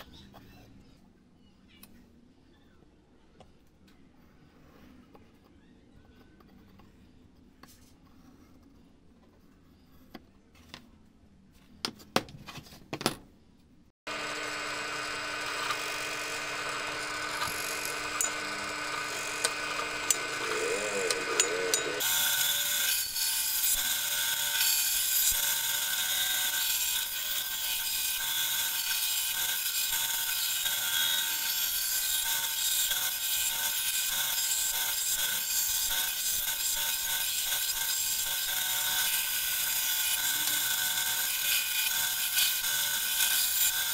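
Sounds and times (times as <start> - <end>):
band saw cutting wood: 14.1 - 43.9
band saw running: 14.1 - 43.9.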